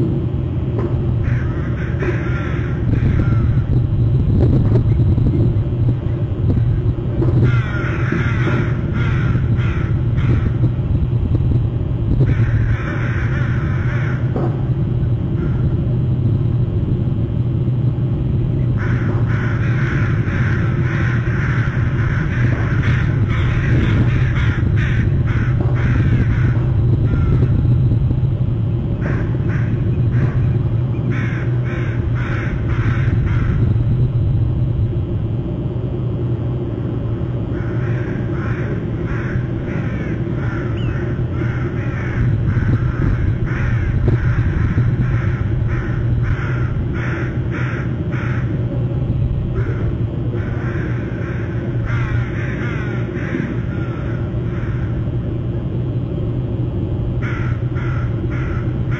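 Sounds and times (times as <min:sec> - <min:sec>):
steady low hum: 0:00.0 - 0:58.9
birds giving harsh calls: 0:01.2 - 0:03.7, 0:07.3 - 0:10.7, 0:12.2 - 0:14.3, 0:18.7 - 0:27.6, 0:29.0 - 0:33.6, 0:37.5 - 0:48.6, 0:49.6 - 0:55.0, 0:57.2 - 0:58.9.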